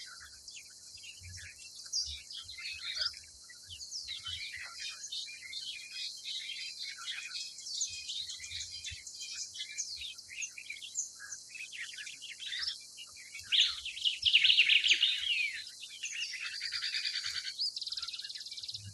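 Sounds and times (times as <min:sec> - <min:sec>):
small birds chirping: 0:00.0 - 0:18.9.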